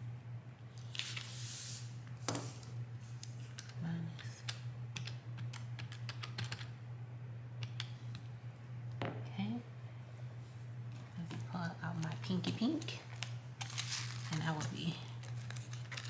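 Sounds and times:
steady low hum: 0.0 - 16.0
pen tapping calculator keys: 5.0 - 6.7.

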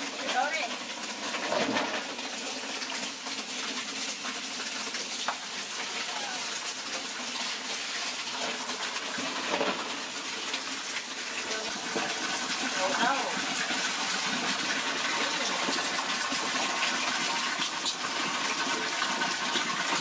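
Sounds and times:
water pouring into metal basin: 0.0 - 20.0.

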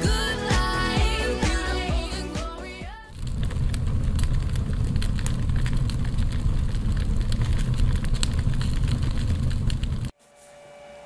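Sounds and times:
low rumble of burning flames: 2.9 - 10.1
sharp fire crackles: 2.9 - 10.2.

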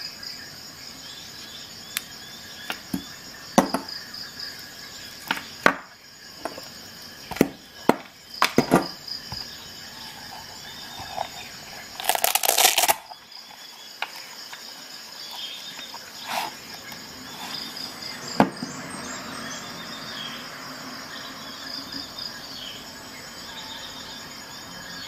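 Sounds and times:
velcro tearing open: 12.0 - 13.1.

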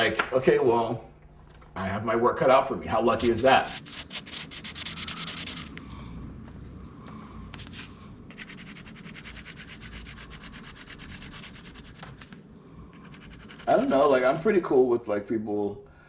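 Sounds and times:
pencil scratching on paper: 3.2 - 5.8, 8.3 - 12.3, 12.9 - 14.4.

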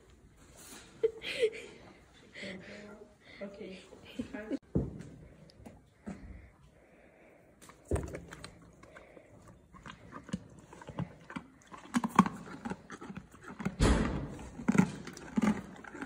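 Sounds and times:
horse crunching treat: 7.6 - 16.0.

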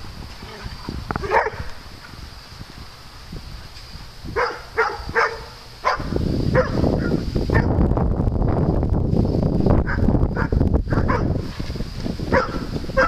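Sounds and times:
dog barking: 1.2 - 1.7, 4.4 - 7.8, 9.9 - 11.4, 12.3 - 13.0.

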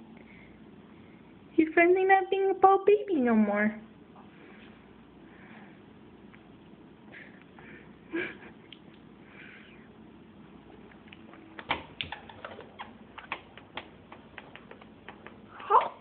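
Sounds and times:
soft clicks and smacks: 10.9 - 15.9.

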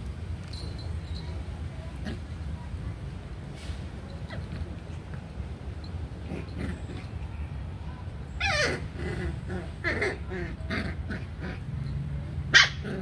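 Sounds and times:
puppy whimpering: 8.4 - 10.8.

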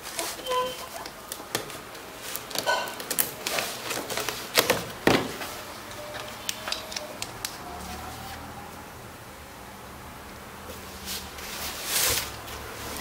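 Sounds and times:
cardboard snapping: 0.2 - 5.5.

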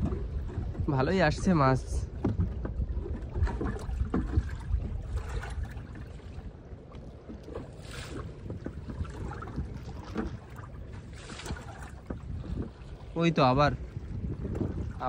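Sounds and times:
water splashing against boat: 0.0 - 15.0
wind rumble on microphone: 0.0 - 15.0.

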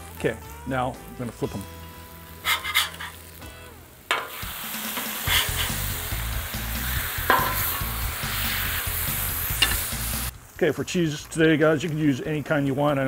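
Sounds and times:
beef patties sizzling: 0.0 - 13.0
metal spatula scraping: 2.4 - 3.3, 4.1 - 6.1, 6.8 - 8.7, 9.4 - 10.1.

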